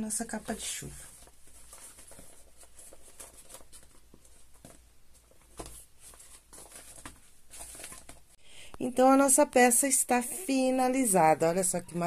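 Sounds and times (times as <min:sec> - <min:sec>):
fabric rustling and crinkling: 0:00.0 - 0:08.4.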